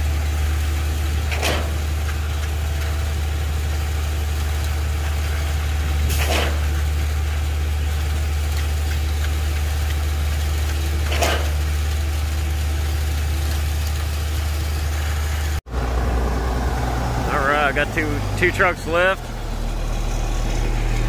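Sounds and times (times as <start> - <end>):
diesel engine drone: 0.0 - 21.0.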